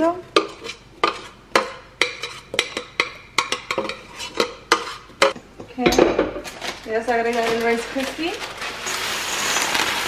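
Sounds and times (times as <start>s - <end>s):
metal spoon scraping saucepan: 0.0s - 5.4s.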